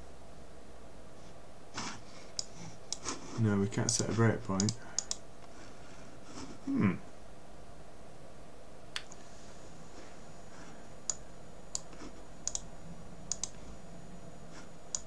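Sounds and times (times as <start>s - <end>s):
faint background hiss: 0.0s - 15.0s
computer mouse clicks: 2.3s - 3.2s, 3.8s - 5.2s, 11.0s - 12.7s, 13.3s - 13.6s, 14.6s - 15.0s.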